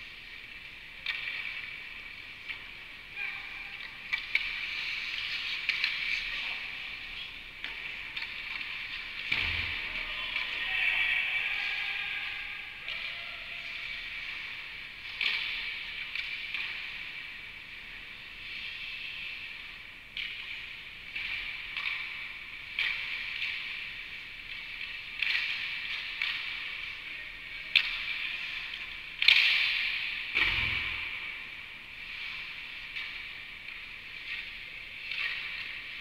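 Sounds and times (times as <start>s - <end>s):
hockey sticks and pucks clacking: 0.0s - 12.1s, 12.7s - 36.0s
skates scraping ice: 3.9s - 10.7s.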